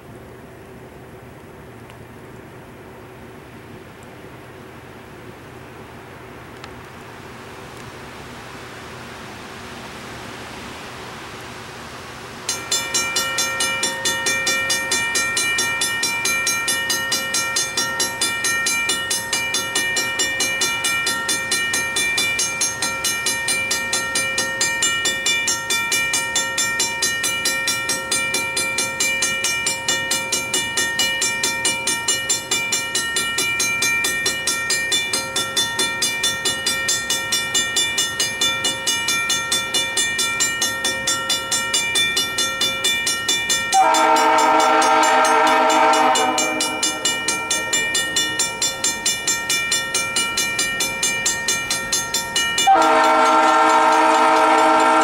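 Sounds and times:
crossing bell clanging: 0:12.4 - 0:55.0.

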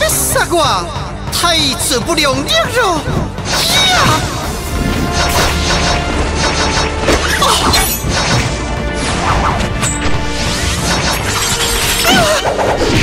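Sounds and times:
dramatic background music: 0:00.0 - 0:13.0.

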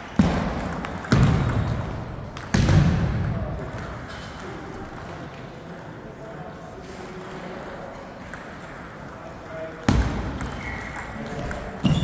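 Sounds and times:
loud echoing knocks: 0:00.0 - 0:03.8
faint background chatter: 0:02.8 - 0:12.0.

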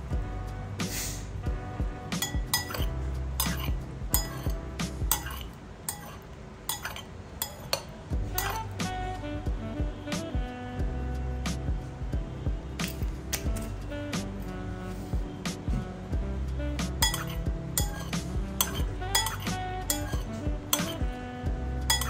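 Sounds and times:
background music: 0:00.0 - 0:07.0, 0:07.6 - 0:22.0
metal spoon clinking ceramic bowl: 0:02.2 - 0:04.5, 0:05.1 - 0:08.6, 0:17.0 - 0:21.0.

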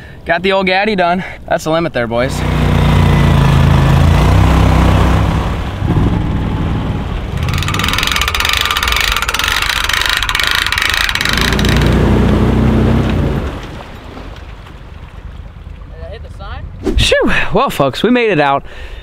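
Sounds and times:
atv engine running: 0:02.3 - 0:13.7
boat motor running: 0:02.3 - 0:14.1
hand-cranked winch clicking: 0:07.4 - 0:12.4.

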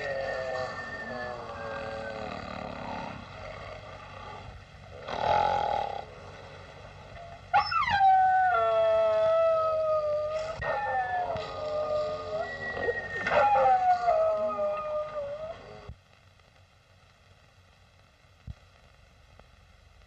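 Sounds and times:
dog howling: 0:00.0 - 0:03.2, 0:07.5 - 0:15.9.

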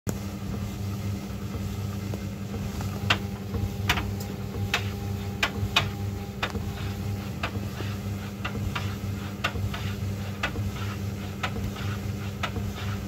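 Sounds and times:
tumble dryer motor hum: 0:00.1 - 0:13.0.

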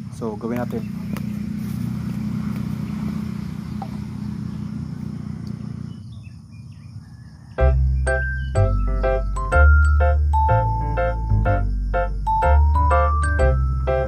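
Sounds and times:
low engine drone: 0:00.0 - 0:06.6
faint bird chirps: 0:00.2 - 0:09.7.

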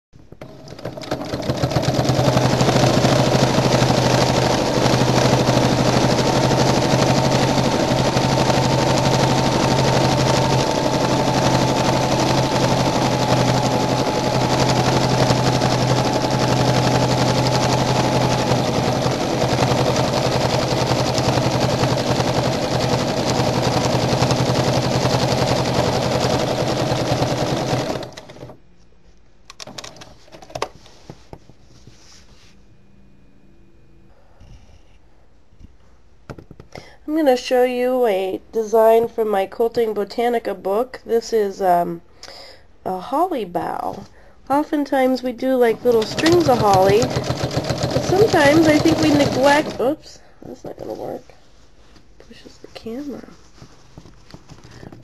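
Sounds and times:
sewing machine stitching fast: 0:00.4 - 0:28.6, 0:45.6 - 0:50.0.

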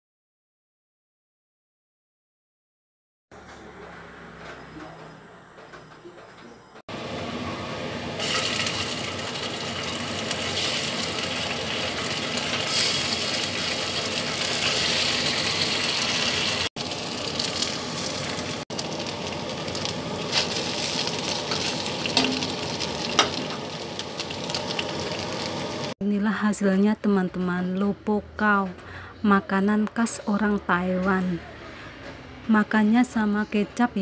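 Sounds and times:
oil sizzling in a wok: 0:07.0 - 0:26.0.

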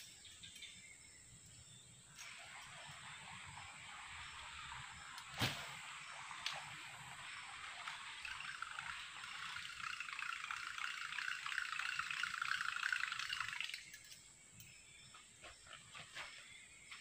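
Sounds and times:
lure blade churning water: 0:07.3 - 0:13.9.

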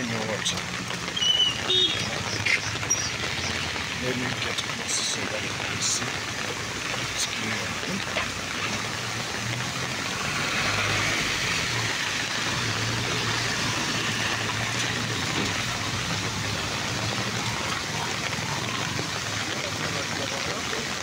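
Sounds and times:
rainwater rushing along street: 0:00.0 - 0:21.0.

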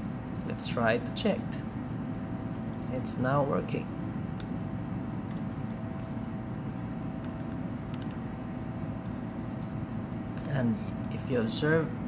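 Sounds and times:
faint hum: 0:00.0 - 0:12.0
computer mouse clicks: 0:00.2 - 0:00.5, 0:02.5 - 0:02.9, 0:05.2 - 0:06.1, 0:07.2 - 0:08.2, 0:09.0 - 0:10.5.

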